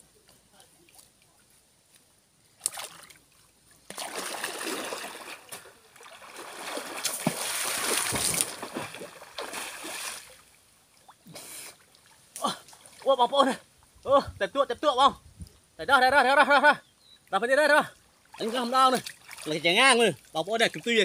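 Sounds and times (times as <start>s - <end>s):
person swimming in river splashing: 2.6s - 10.5s, 18.3s - 19.5s.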